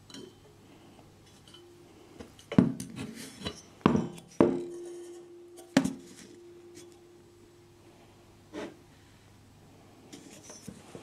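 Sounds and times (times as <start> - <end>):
metallic ring: 1.2 - 2.6, 3.4 - 8.1.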